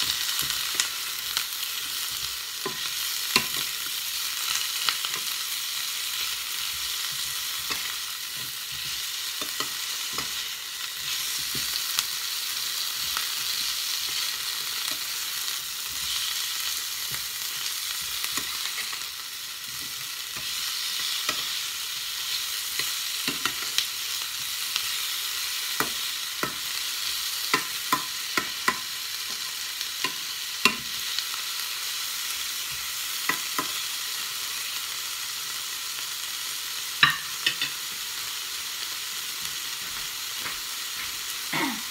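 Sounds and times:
prawns sizzling in frying pan: 0.0s - 41.9s.

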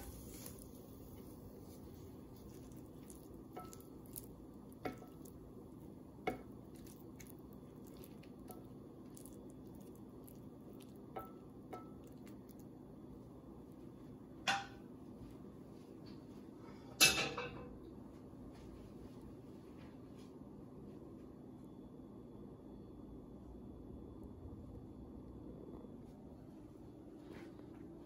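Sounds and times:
faint steady hum: 0.0s - 28.0s
wooden spatula tapping on plate: 4.8s - 5.4s, 6.2s - 6.9s.

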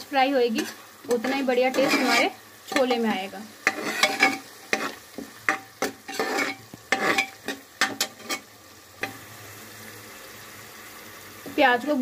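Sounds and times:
frying sizzle: 0.0s - 12.0s
spoon scraping a pot: 0.5s - 3.0s, 3.6s - 9.2s.

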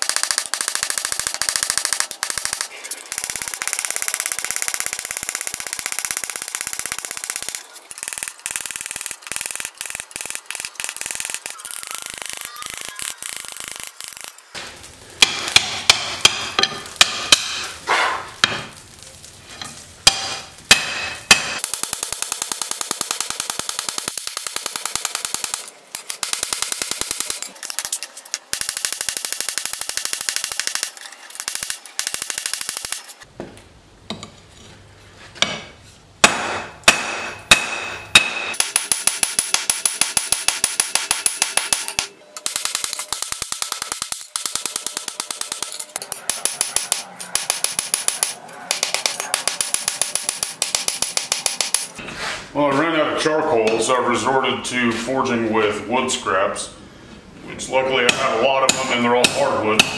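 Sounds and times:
hammer striking metal on anvil: 15.2s - 18.8s, 20.1s - 21.8s, 35.4s - 52.0s, 58.1s - 59.9s.

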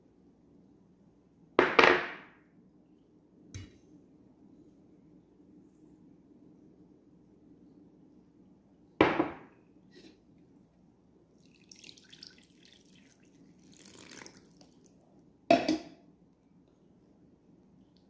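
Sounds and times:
liquid trickling and splashing: 11.4s - 15.0s.

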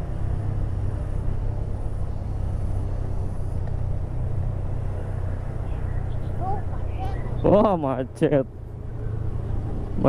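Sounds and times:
motorcycle engine running: 0.0s - 10.0s
road noise: 0.0s - 10.0s.

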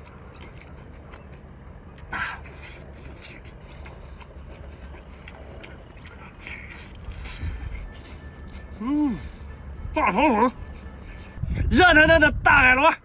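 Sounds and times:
wet chewing clicks: 0.0s - 8.8s.

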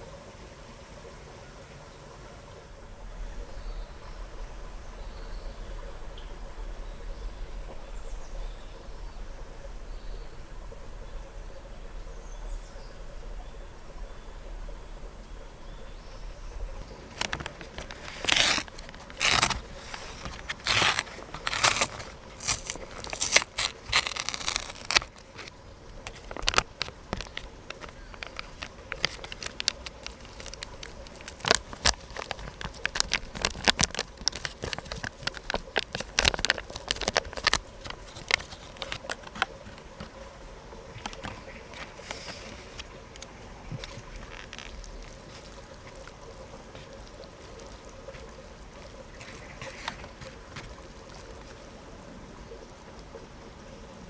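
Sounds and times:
plastic packaging crinkling and tearing: 17.0s - 40.2s, 41.0s - 51.8s.

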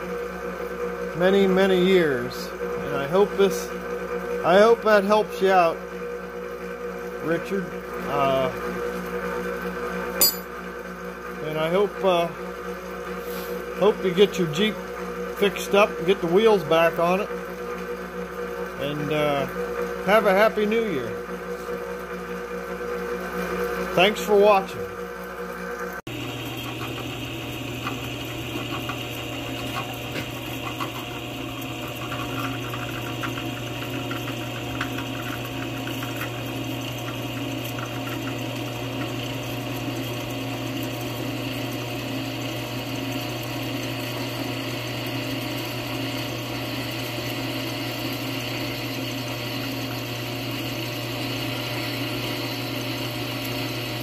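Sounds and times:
drill press drilling steel: 26.2s - 54.0s.

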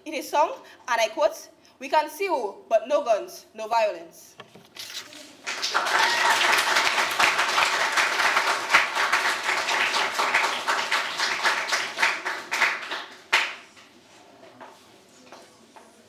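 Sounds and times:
audience applauding: 5.4s - 13.6s.

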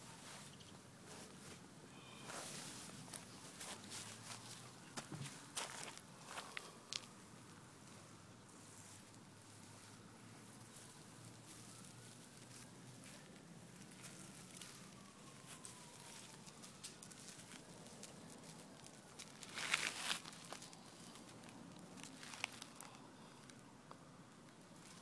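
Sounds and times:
animal rustling through dry leaves: 7.8s - 23.6s.

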